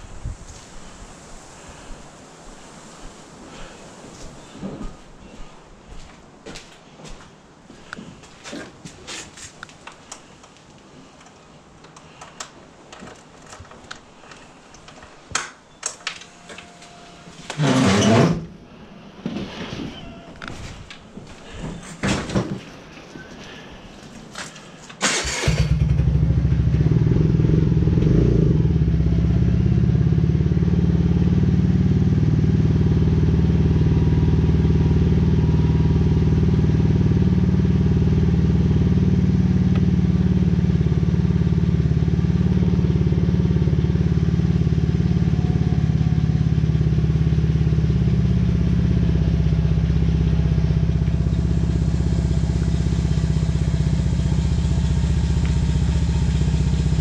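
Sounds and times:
vehicle engine starting and idling: 0:25.0 - 0:30.1, 0:42.6 - 0:57.0.

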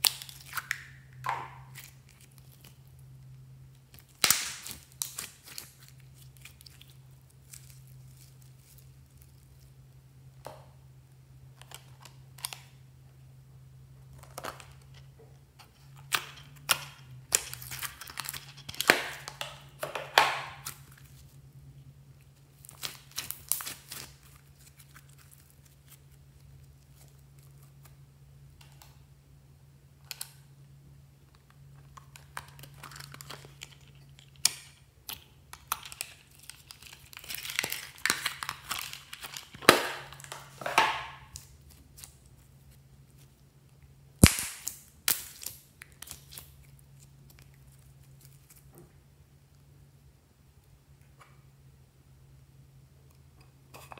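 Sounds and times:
slime crackling: 0:00.0 - 0:09.8, 0:22.2 - 0:27.9
faint low hum: 0:00.0 - 0:53.9
sharp snap: 0:44.2 - 0:45.2
slime popping and clicking: 0:44.2 - 0:46.3.

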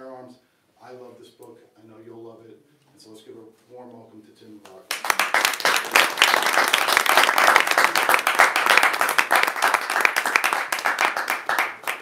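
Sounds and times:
audience applauding: 0:04.9 - 0:12.0.

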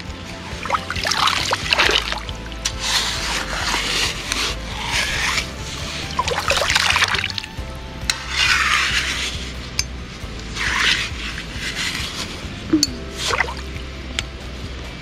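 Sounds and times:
background music: 0:00.0 - 0:15.0
water sloshing in sieve: 0:00.5 - 0:07.5, 0:10.6 - 0:13.8.

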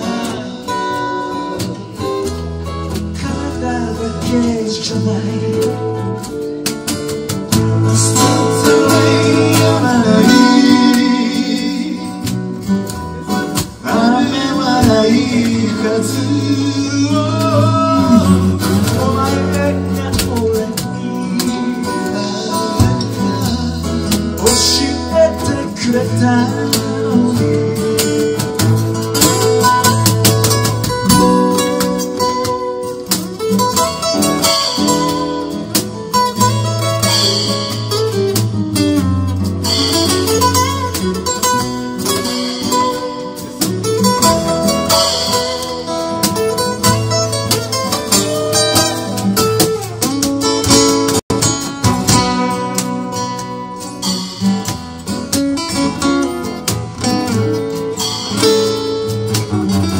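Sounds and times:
low bass notes: 0:00.0 - 0:32.4
acoustic guitars strummed: 0:00.0 - 0:59.9
cajon beats: 0:00.0 - 0:59.9.

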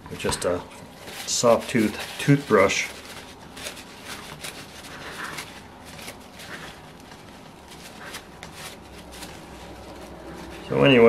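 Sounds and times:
paper towel rustling and rubbing: 0:00.1 - 0:11.0.

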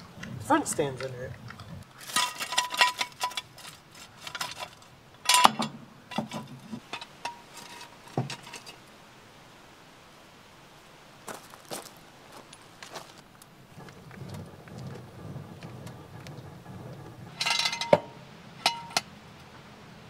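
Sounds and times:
metallic clinks and rattles: 0:00.7 - 0:08.8, 0:14.2 - 0:19.1
ringing metal clanks: 0:02.1 - 0:08.8, 0:14.8 - 0:19.1.

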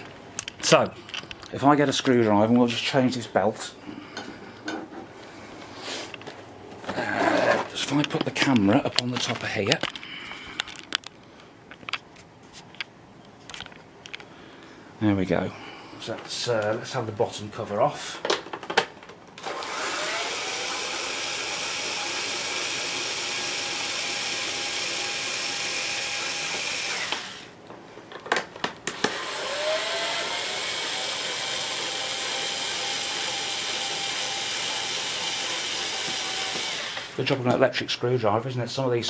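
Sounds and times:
electric screwdriver motor whine: 0:19.4 - 0:27.5, 0:28.9 - 0:37.2.

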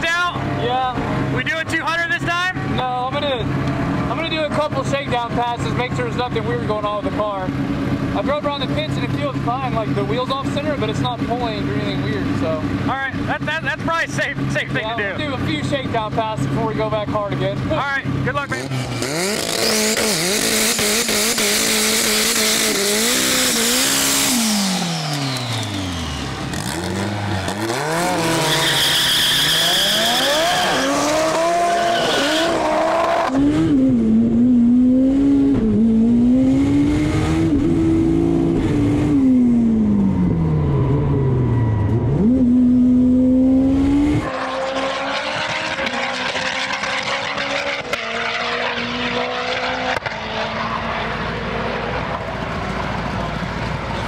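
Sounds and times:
car engine accelerating hard: 0:00.5 - 0:54.0
tyres squealing: 0:26.7 - 0:33.2.

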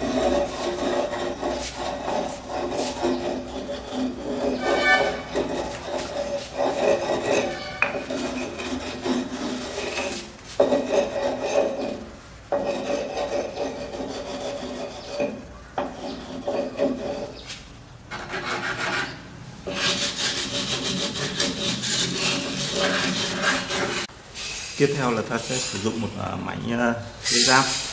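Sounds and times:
stone scraping cement: 0:00.0 - 0:24.1.

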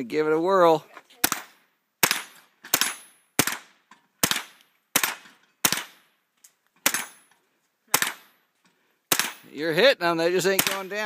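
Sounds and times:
rifle shots with echo: 0:01.2 - 0:06.1, 0:06.8 - 0:07.2, 0:07.9 - 0:08.4, 0:09.1 - 0:09.5, 0:10.5 - 0:11.0.

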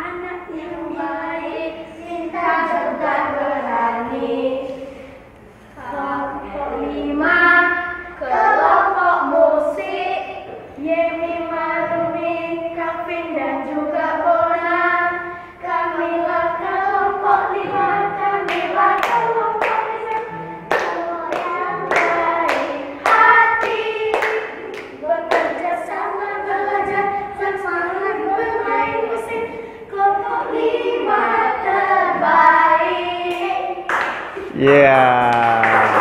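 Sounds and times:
children singing in unison: 0:00.0 - 0:33.9
hand claps: 0:18.5 - 0:25.6, 0:33.9 - 0:36.0.

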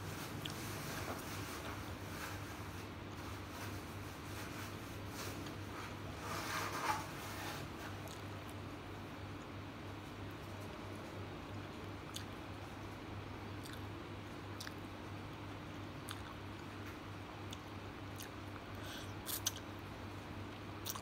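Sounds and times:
steady low hum: 0:00.0 - 0:21.0
person chewing: 0:11.8 - 0:12.4, 0:13.6 - 0:13.9, 0:14.5 - 0:14.8, 0:16.0 - 0:16.4, 0:17.5 - 0:19.7.

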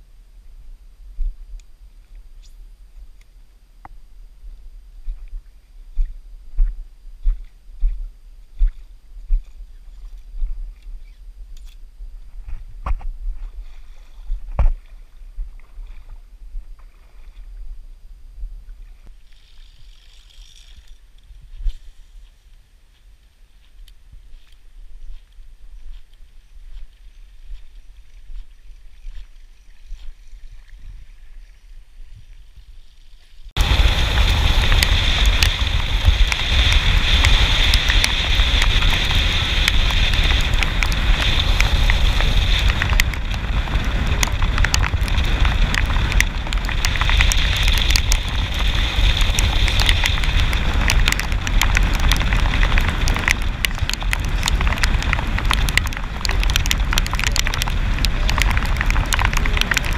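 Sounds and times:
rain ticking on camera: 0:33.6 - 0:59.9
wind buffeting on microphone: 0:33.6 - 0:59.9.

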